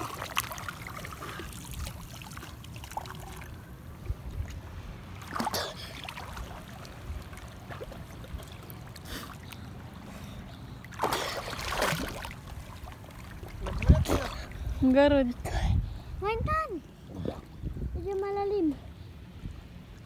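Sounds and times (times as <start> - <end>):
sea water splashing: 0.0 - 14.8.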